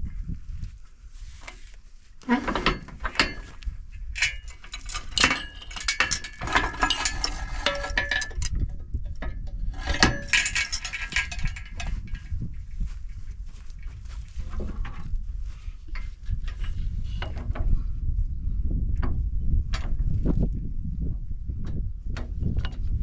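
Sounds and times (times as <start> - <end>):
steel chain rattling and clinking: 4.2 - 12.6
low rumble: 6.9 - 23.0.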